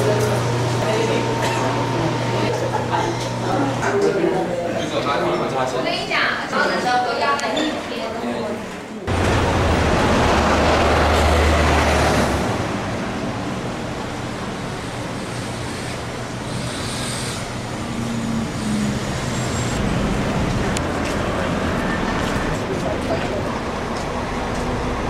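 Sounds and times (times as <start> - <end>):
traffic hum: 9.0 - 25.0
vehicle passing by: 9.1 - 14.5, 17.7 - 25.0.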